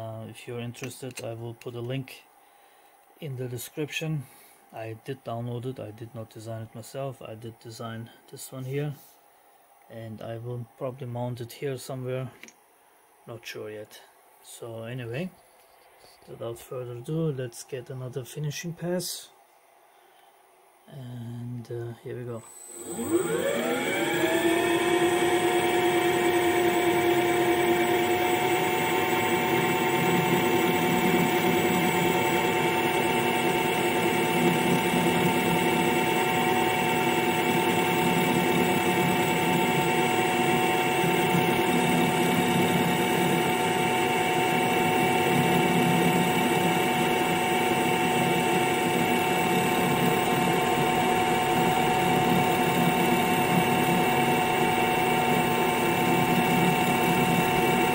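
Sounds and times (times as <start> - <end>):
lathe spindle whine: 22.4 - 57.9.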